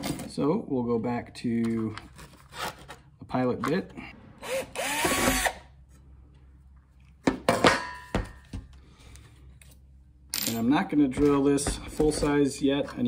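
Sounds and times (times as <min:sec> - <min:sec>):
cordless drill drilling steel: 0:04.4 - 0:05.6.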